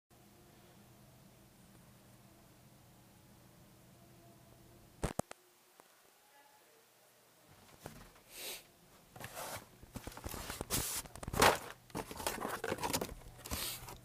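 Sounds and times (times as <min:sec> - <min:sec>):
cardboard and plastic packaging rustling: 0:07.5 - 0:08.2, 0:09.1 - 0:14.0.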